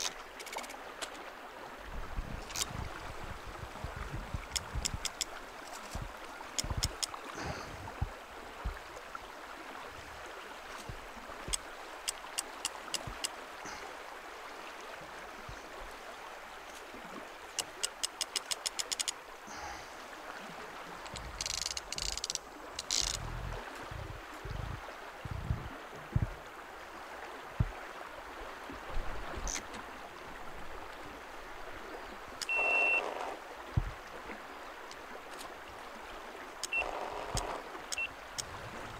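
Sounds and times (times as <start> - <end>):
river water rushing: 0.0 - 38.9
fishing reel clicking: 4.5 - 5.3, 6.6 - 7.1, 17.6 - 19.2, 21.2 - 23.2
high whistle: 32.4 - 33.0.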